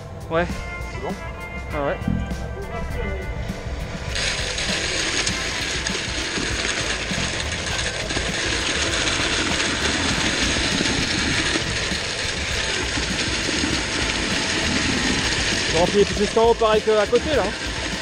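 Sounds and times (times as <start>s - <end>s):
concrete pump running: 1.7s - 18.0s
wet concrete pouring from hose: 4.0s - 18.0s.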